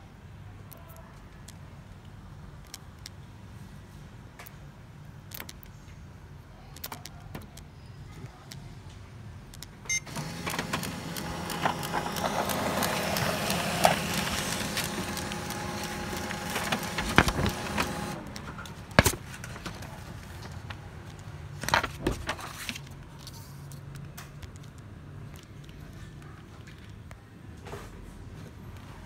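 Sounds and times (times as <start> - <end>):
laser printer whirring and clicking: 9.9 - 20.5.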